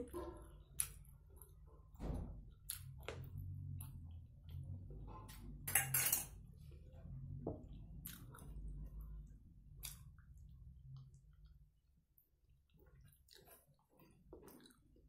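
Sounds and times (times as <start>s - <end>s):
steel bowl clattering: 5.7s - 6.3s.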